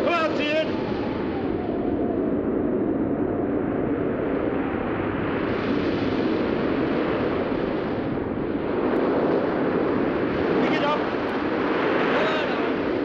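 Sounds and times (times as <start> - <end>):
wind-blown spray: 0.0 - 13.0
heavy waves: 5.4 - 13.0.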